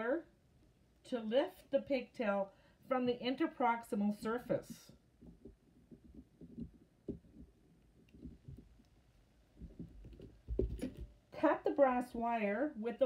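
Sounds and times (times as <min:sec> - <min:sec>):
heavy thumps: 0:04.7 - 0:11.3
soft knocks and rubbing on plastic: 0:05.2 - 0:11.2.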